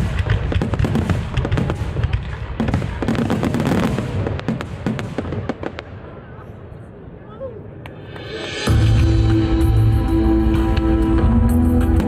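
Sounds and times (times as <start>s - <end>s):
fireworks bursting: 0.0s - 6.4s
crackling fireworks stars: 0.0s - 6.5s.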